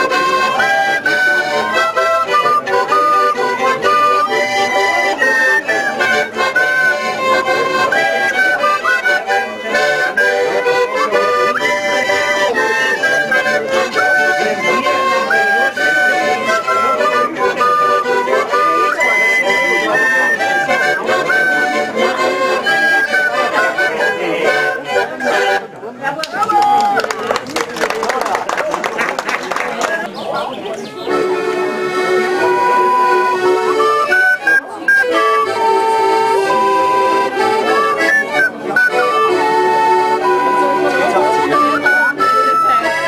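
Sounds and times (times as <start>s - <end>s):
fiddles: 0.0s - 27.1s, 29.5s - 43.0s
folk dance tune on accordion: 0.0s - 43.0s.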